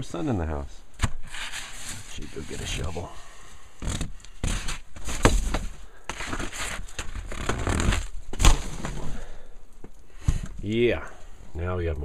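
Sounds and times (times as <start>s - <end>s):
snow crunching and breaking away: 6.1s - 9.4s.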